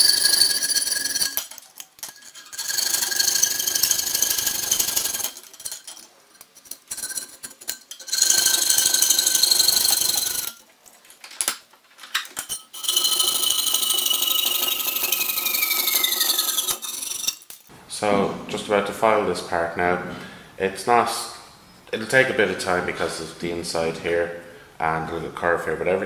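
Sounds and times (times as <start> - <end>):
saw cutting sheet metal: 0.0 - 1.4, 12.8 - 17.5.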